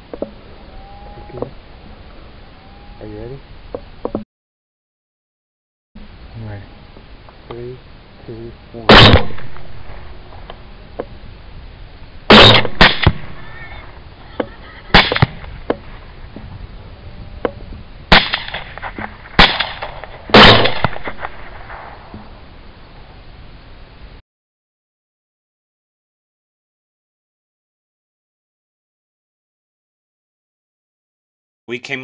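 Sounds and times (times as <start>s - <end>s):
rifle shots with echo: 8.9s - 10.5s, 12.3s - 13.4s, 15.0s - 15.4s, 18.1s - 22.1s.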